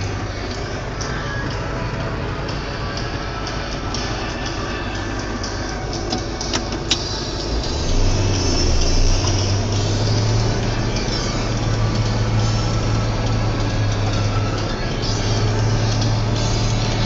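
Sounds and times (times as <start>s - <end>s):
tractor diesel engine droning: 0.0s - 17.0s.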